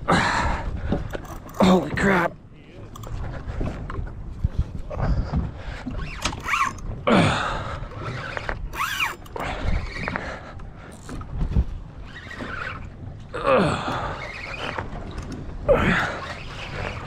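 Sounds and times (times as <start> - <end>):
fishing reel being cranked: 1.1 - 1.7, 2.9 - 3.2, 6.0 - 6.9, 7.9 - 11.2, 12.0 - 13.0
rod and reel squealing: 5.9 - 6.9, 7.9 - 11.2, 12.0 - 13.1, 13.9 - 17.0.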